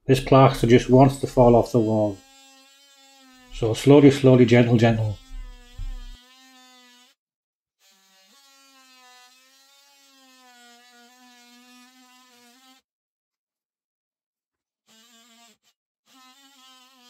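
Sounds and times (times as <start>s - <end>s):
multi-tool cutting plaster: 0.4s - 7.2s, 7.8s - 12.8s, 14.8s - 17.0s
short low thump: 5.2s - 6.2s.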